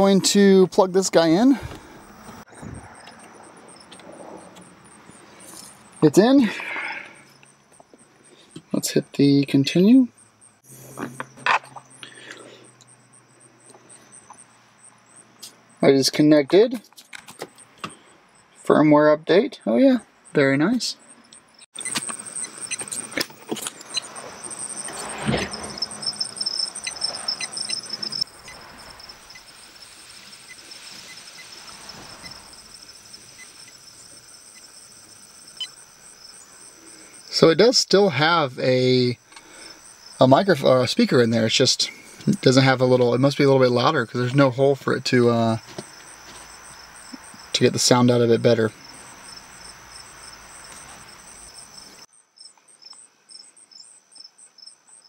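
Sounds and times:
faint high-pitched chirring: 1.8s - 16.4s, 17.3s - 55.0s
low hiss: 27.9s - 45.7s.

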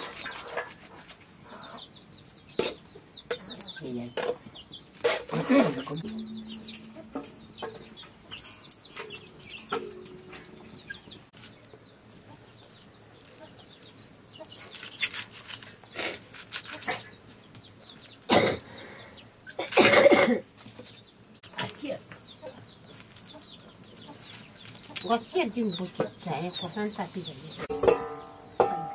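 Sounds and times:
sickle cutting leafy greens: 0.0s - 1.3s, 14.4s - 17.3s, 24.2s - 25.3s
chickens clucking and chirping: 0.0s - 19.8s, 20.5s - 28.9s.

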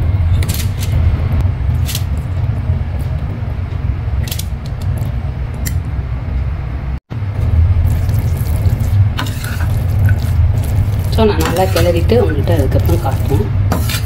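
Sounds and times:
steady low hum: 0.0s - 14.0s
metal spoon scraping steel pan: 9.2s - 14.0s.

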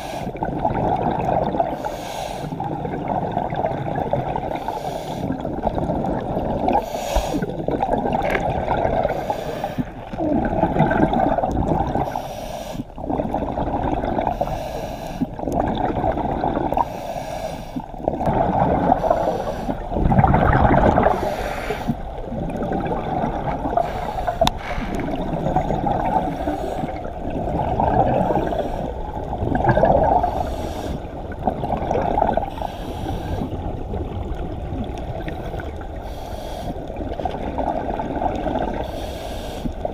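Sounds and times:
diver breathing through regulator: 0.0s - 0.4s, 1.7s - 2.7s, 4.4s - 5.5s, 6.7s - 7.6s, 8.9s - 10.0s, 12.0s - 13.0s, 14.2s - 15.4s, 16.7s - 18.0s, 18.8s - 20.0s, 20.9s - 22.2s, 23.6s - 29.1s, 30.0s - 31.3s, 32.3s - 33.7s, 35.4s - 37.0s, 38.7s - 39.9s
gurgling exhaled bubbles: 0.0s - 1.9s, 2.5s - 17.1s, 17.8s - 39.9s.

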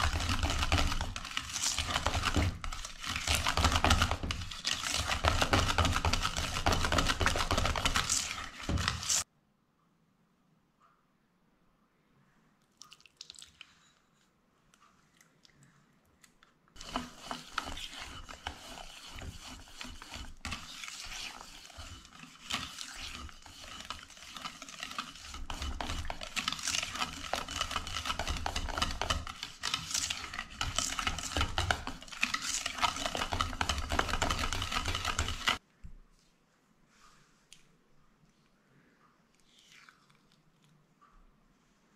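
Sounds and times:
whisk clicking against metal bowl: 0.0s - 9.2s, 16.8s - 35.6s.

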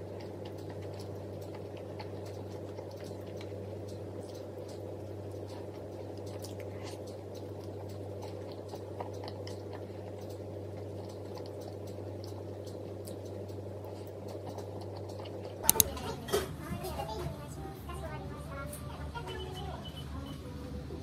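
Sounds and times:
person chewing food: 0.0s - 15.9s
steady low hum: 0.0s - 19.2s.

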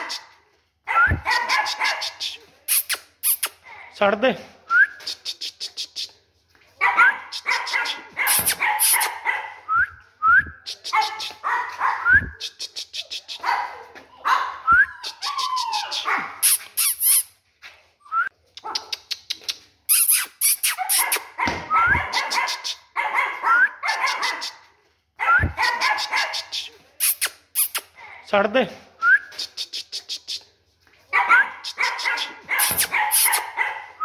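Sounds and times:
puppies yapping: 13.4s - 17.2s, 20.1s - 24.6s, 31.2s - 34.0s.

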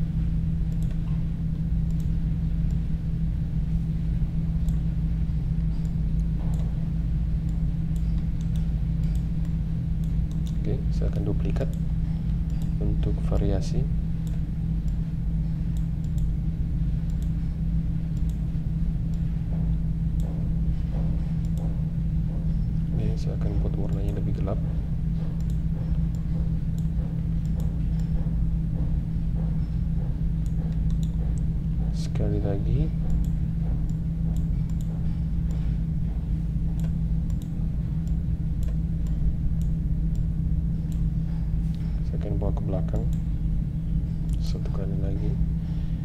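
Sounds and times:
low electrical hum: 0.0s - 46.0s
computer mouse clicks: 7.4s - 10.6s, 15.7s - 16.3s, 25.4s - 28.1s, 30.4s - 31.2s, 36.8s - 40.3s.

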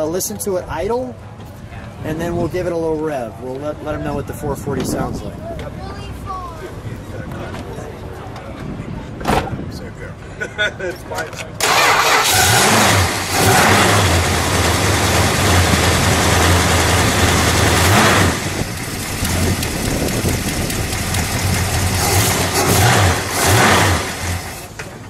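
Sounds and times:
car engine idling: 11.6s - 24.8s.

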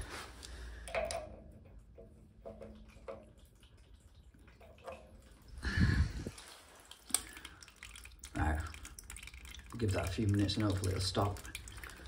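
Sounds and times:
water dripping into a bag: 0.0s - 12.0s.

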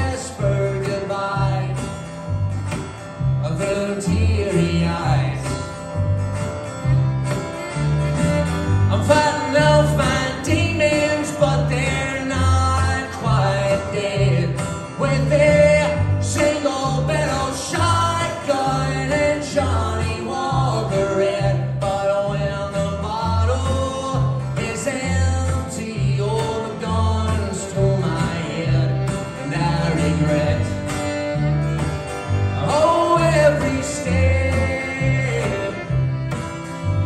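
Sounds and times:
strummed acoustic guitar: 0.0s - 37.0s
upright bass plucking: 0.0s - 37.0s
bowed fiddle: 5.2s - 9.8s, 27.8s - 37.0s.

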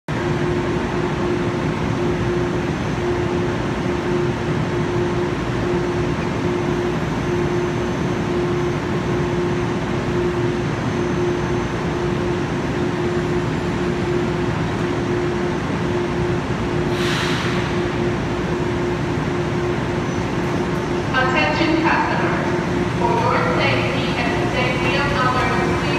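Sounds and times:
train equipment humming: 0.1s - 25.9s
short hiss of air: 16.9s - 17.8s.

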